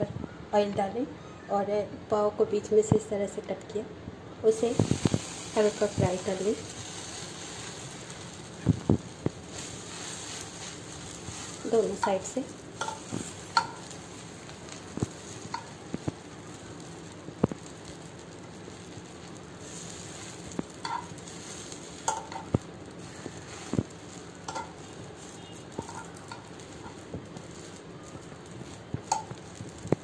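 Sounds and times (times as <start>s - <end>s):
bread rolls sizzling in a pan: 4.4s - 30.0s
metal tongs scraping a pan: 9.5s - 15.8s, 19.6s - 29.9s.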